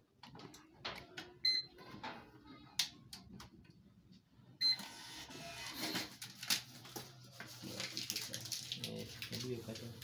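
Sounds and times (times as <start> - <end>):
receipt printer beeping: 4.6 - 6.1
receipt printer printing: 4.6 - 6.4.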